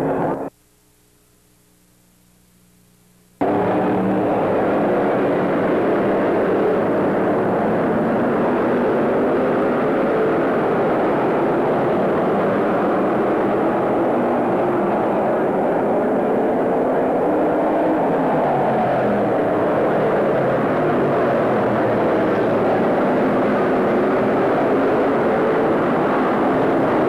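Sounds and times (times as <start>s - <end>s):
race car engines passing: 3.4s - 27.0s.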